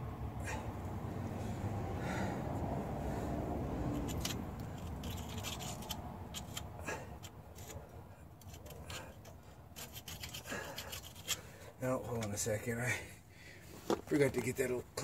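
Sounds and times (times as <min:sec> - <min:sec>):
low steady rumble: 0:00.0 - 0:13.7
metal tool scraping and clicking: 0:03.9 - 0:11.5.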